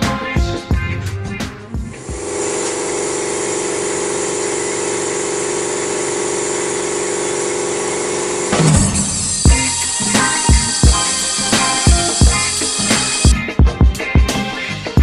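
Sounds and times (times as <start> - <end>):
steady hum: 1.8 - 13.3
compressed air hissing: 1.9 - 13.4.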